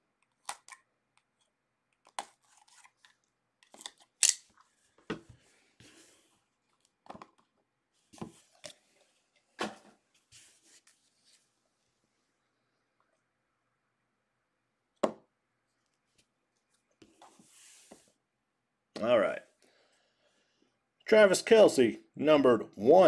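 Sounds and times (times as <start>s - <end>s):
cardboard scrapes: 17.3s - 18.1s.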